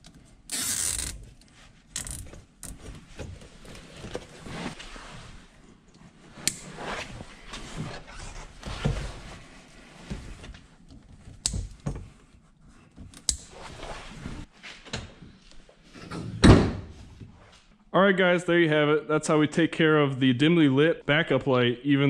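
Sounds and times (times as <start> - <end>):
rustling and scraping of wires: 0.5 - 11.5, 12.1 - 16.0.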